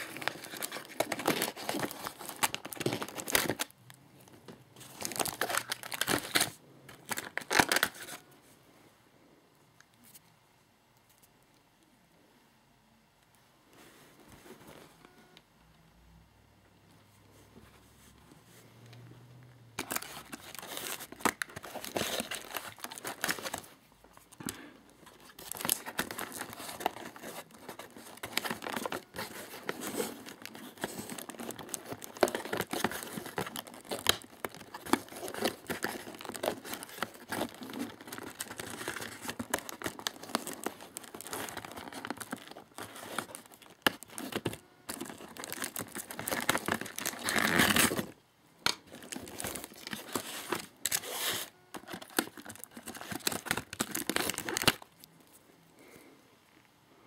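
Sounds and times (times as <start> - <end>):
cardboard and plastic tearing: 0.0 - 3.7, 4.8 - 8.2, 19.8 - 23.7, 24.3 - 55.1.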